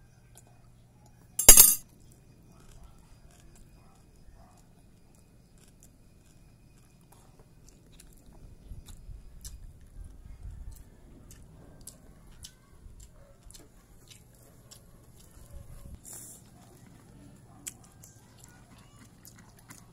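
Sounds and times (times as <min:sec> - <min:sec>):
metal spoon clinking into bowl: 0:01.4 - 0:01.8.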